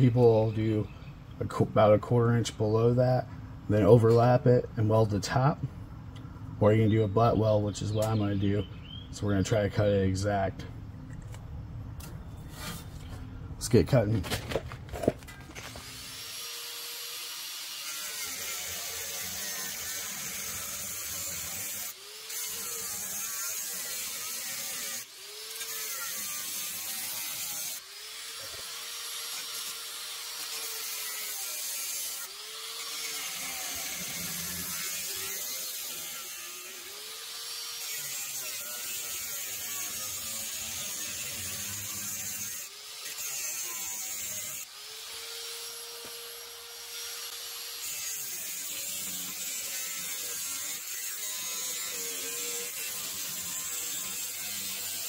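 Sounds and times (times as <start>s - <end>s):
angle grinder cutting sheet steel: 15.6s - 55.0s.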